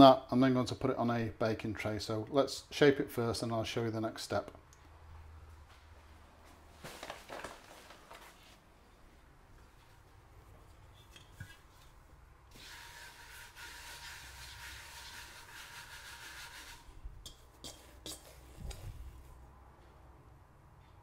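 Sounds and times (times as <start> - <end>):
hand brushing flour on wood: 12.6 - 16.8, 17.5 - 19.3.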